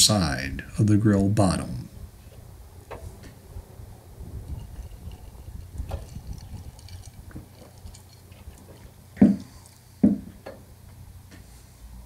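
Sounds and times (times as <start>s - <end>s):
dull knocks: 9.2s - 10.6s.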